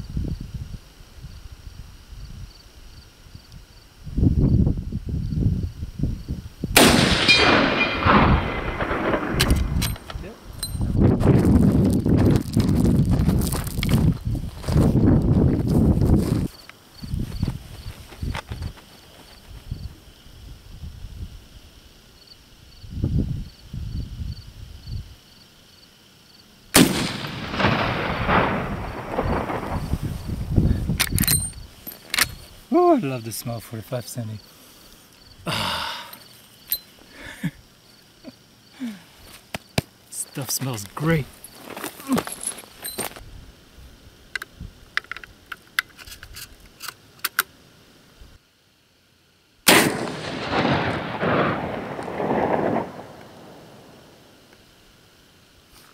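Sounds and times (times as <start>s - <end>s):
rifle shot with rolling echo: 6.8s - 10.0s, 26.7s - 30.3s, 49.7s - 54.4s.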